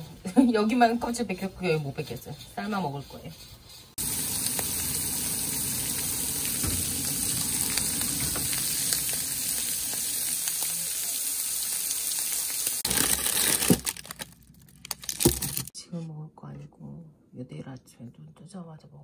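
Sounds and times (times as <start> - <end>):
water boiling in a pot: 4.0 - 12.9.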